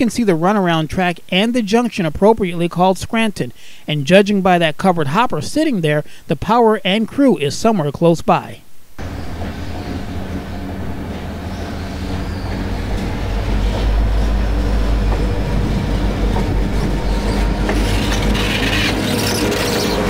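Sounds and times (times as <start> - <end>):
diesel locomotive engine: 9.0 - 20.0.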